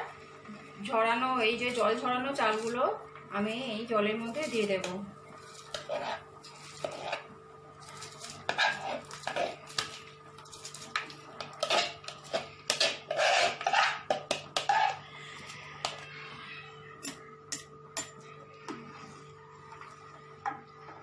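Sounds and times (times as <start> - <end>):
faint hum: 0.0 - 21.0
metal spoon scraping plastic bowl: 4.2 - 15.0.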